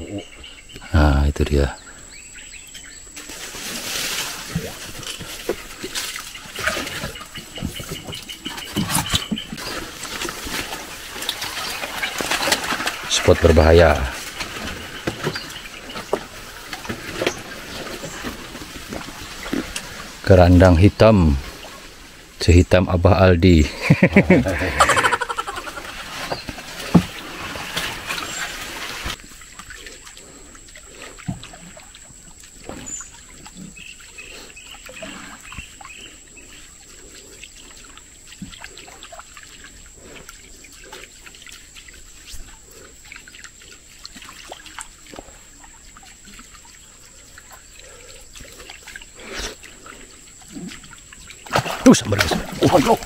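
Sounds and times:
water trickling and splashing: 0.5 - 53.0
leaves rustling: 1.8 - 22.4, 23.7 - 29.6.

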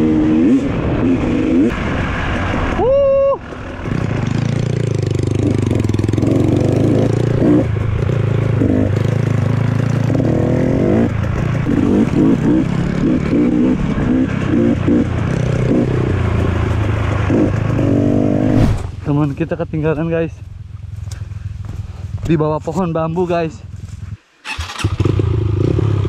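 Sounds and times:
dirt bike throttle blips: 3.5 - 22.9
dirt bike engine running: 3.5 - 24.2.

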